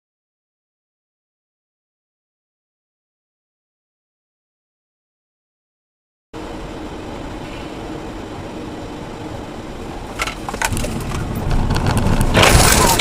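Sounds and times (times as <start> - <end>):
car engine and road rumble: 6.4 - 13.0
sharp cracks or knocks: 10.2 - 13.0.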